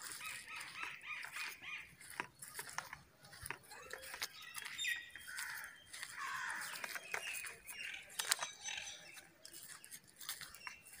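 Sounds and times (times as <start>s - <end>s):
harsh squawking calls: 0.0s - 2.1s, 3.7s - 9.2s
birds chirping: 0.0s - 11.0s.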